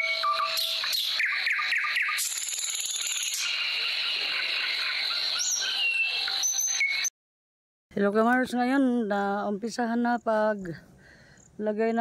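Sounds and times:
bird calls and chirps: 0:00.0 - 0:07.1.

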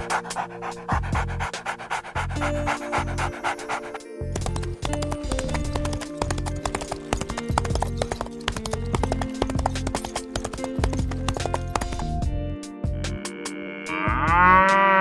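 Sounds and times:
horse hooves clip-clopping: 0:02.4 - 0:12.3.

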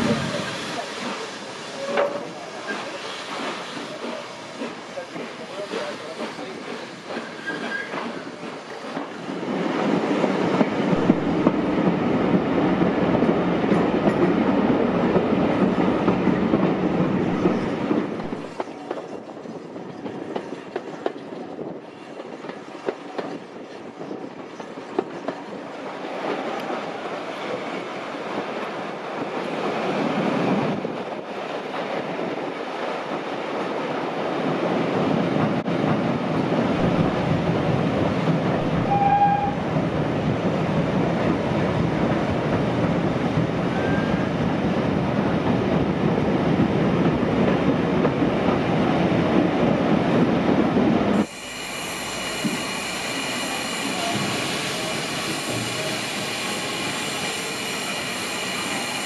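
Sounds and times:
steam locomotive hissing: 0:00.0 - 0:12.0, 0:51.0 - 0:59.0
train wheels rumbling on rail: 0:00.0 - 0:59.0.

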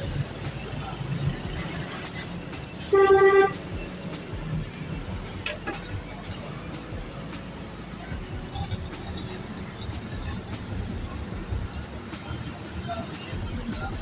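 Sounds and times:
street traffic: 0:00.0 - 0:14.0
vehicle horn toot: 0:02.9 - 0:03.6.

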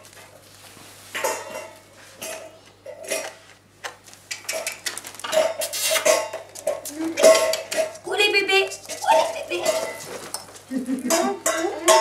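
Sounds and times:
faint electrical hum: 0:00.0 - 0:12.0
metal bowl clinking and ringing: 0:11.1 - 0:12.0.

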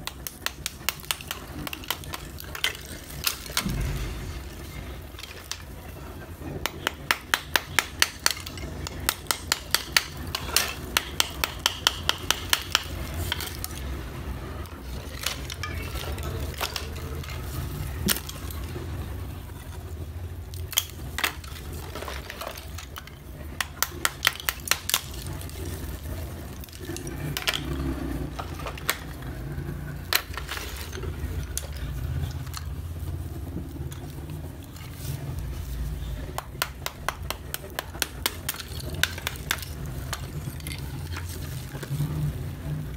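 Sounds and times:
low steady hum: 0:00.0 - 0:42.9
clay plates clinking and scraping: 0:06.6 - 0:18.8, 0:20.5 - 0:32.8.

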